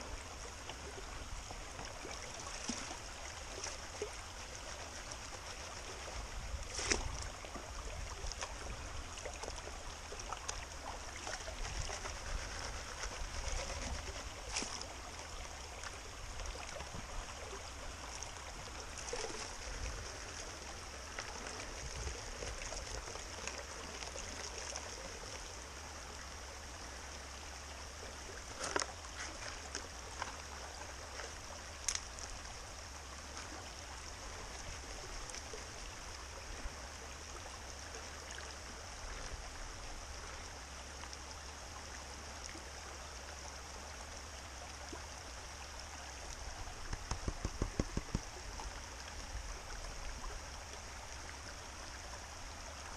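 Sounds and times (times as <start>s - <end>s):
creek running over rocks: 0.0s - 52.9s
water swishing in plastic pan: 11.0s - 15.0s.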